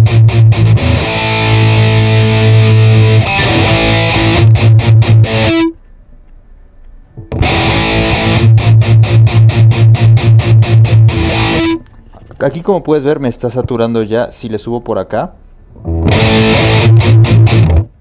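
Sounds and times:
distorted electric guitar chugging: 0:00.0 - 0:05.8, 0:07.2 - 0:11.8, 0:15.8 - 0:18.0.

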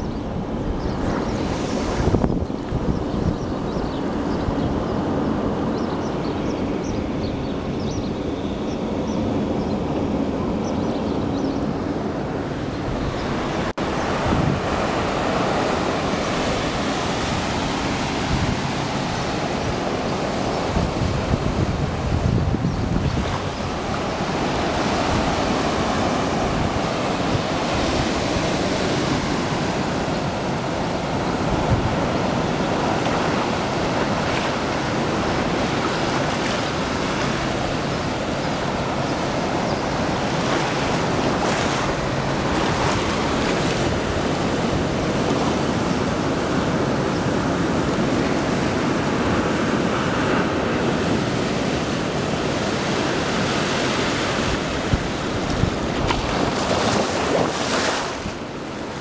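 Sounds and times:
ocean surf washing onto beach: 0:00.0 - 0:07.8, 0:11.7 - 0:59.0
wind: 0:00.0 - 0:59.0.

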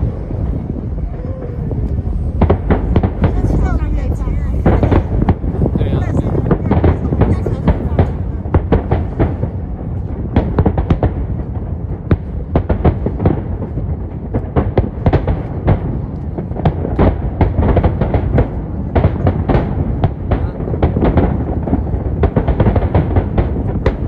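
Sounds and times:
fireworks bangs: 0:00.0 - 0:24.0
low rumble: 0:00.0 - 0:24.0.

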